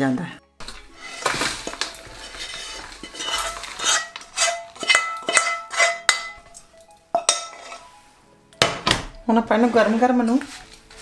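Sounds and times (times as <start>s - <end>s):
metal spoon scraping a pan: 0.6s - 8.0s
spoon knocking on pan: 2.5s - 7.8s.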